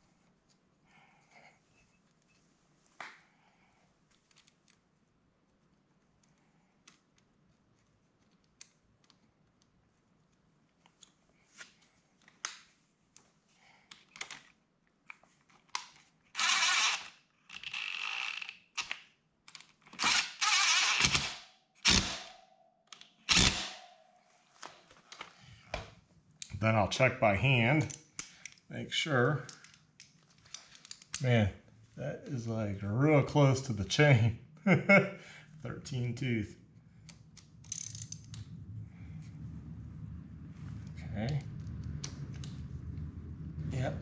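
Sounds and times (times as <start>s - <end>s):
cordless power driver whirring: 16.4s - 17.1s, 23.3s - 23.7s
tools and metal parts clicking: 37.5s - 38.4s.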